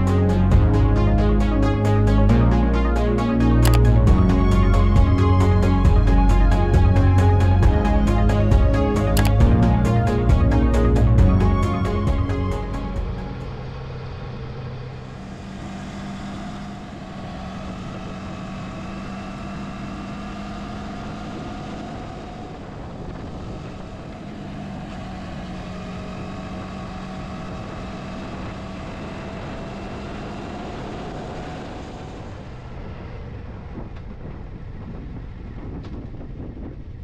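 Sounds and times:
road and wind noise: 0:00.0 - 0:37.0.

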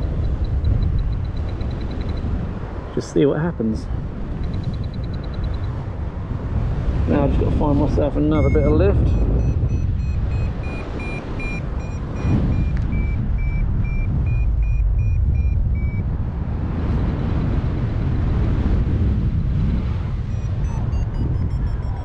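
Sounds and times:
variometer beeping: 0:00.0 - 0:02.4, 0:04.4 - 0:05.8, 0:08.3 - 0:16.1, 0:20.2 - 0:22.0
wind noise on microphone: 0:00.0 - 0:22.0.

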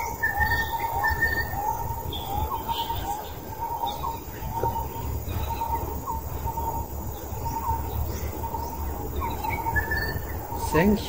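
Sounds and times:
birds chirping: 0:00.0 - 0:11.0
steady low rumble: 0:00.0 - 0:11.0.

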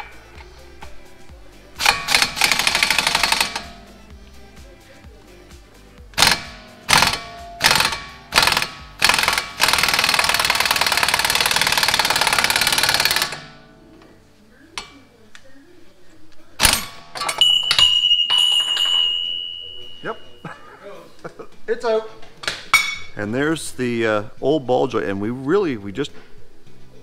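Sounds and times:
pneumatic impact wrench hammering: 0:01.8 - 0:03.9, 0:06.1 - 0:13.6, 0:16.6 - 0:18.0
high ringing tone: 0:17.2 - 0:20.5.

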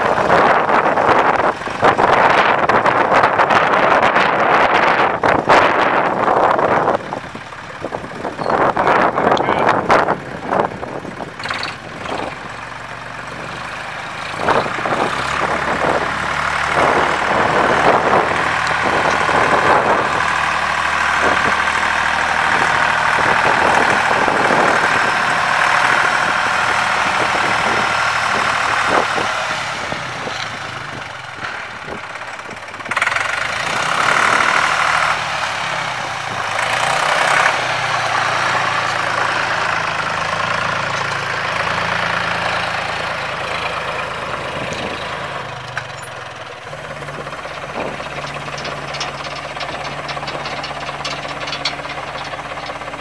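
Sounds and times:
diesel tractor engine running: 0:00.0 - 0:53.0
clicks and knocks: 0:47.0 - 0:53.0.

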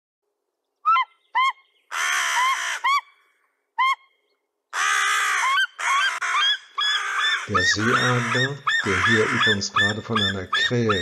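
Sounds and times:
eagle yelping calls: 0:00.8 - 0:03.2, 0:03.8 - 0:11.0
crow cawing: 0:00.9 - 0:03.2, 0:04.7 - 0:11.0.

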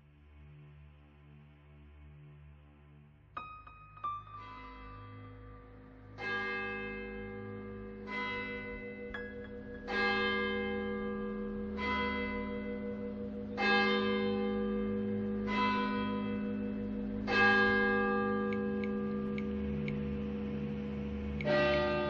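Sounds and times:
steady low hum: 0:05.4 - 0:22.0.

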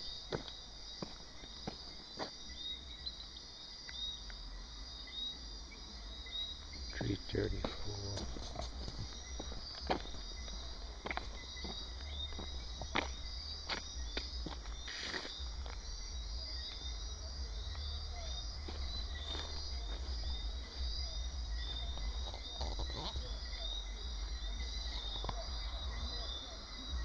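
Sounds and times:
crickets chirping: 0:00.0 - 0:27.0
low rumble: 0:15.4 - 0:26.2.

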